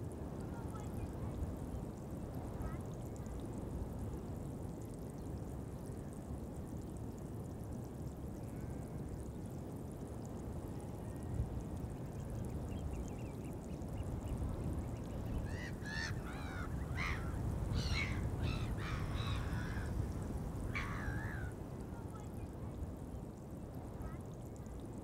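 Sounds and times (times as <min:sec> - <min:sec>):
wind rumbling on microphone: 0:00.0 - 0:25.0
faint rapid bird trill: 0:11.9 - 0:21.5
birds calling: 0:12.6 - 0:21.5.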